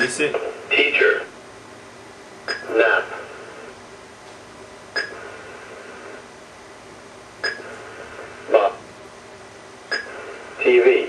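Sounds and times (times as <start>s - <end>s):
recorded voice playback: 0.0s - 1.4s, 2.6s - 3.4s, 8.4s - 8.8s, 10.6s - 11.0s
electronic clicks with beep: 2.5s - 2.7s, 5.0s - 5.2s, 7.4s - 7.7s, 9.9s - 10.2s.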